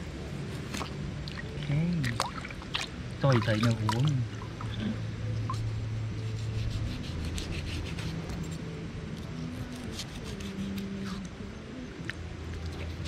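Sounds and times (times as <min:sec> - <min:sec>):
knife scraping fish scales: 0:06.2 - 0:08.5, 0:09.6 - 0:11.2.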